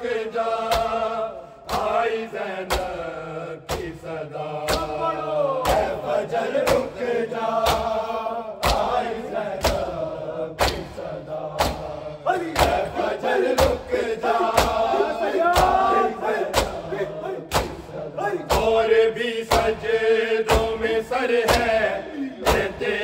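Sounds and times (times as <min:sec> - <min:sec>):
men chanting together: 0:00.0 - 0:23.0
hands slapping chests: 0:00.7 - 0:01.0, 0:01.7 - 0:02.0, 0:02.6 - 0:03.1, 0:03.7 - 0:04.0, 0:04.6 - 0:06.0, 0:06.6 - 0:07.0, 0:07.6 - 0:08.0, 0:08.6 - 0:12.0, 0:12.6 - 0:23.0.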